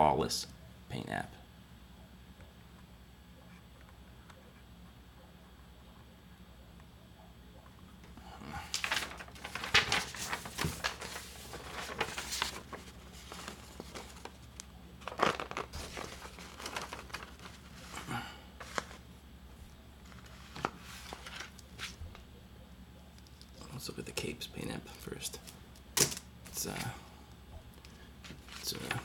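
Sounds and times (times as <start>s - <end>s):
crinkly plastic rustles: 8.6s - 19.1s, 20.0s - 22.2s, 28.2s - 29.0s.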